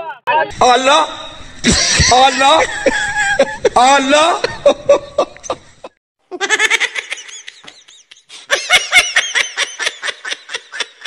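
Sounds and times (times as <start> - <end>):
high-pitched laughter: 6.3 - 11.0.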